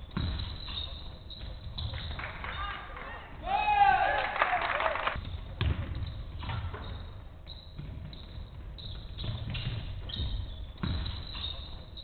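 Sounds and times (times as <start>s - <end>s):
shoe squeaks: 0.0s - 2.8s, 5.2s - 12.0s
basketball bouncing on floor: 0.1s - 2.3s, 5.2s - 11.8s.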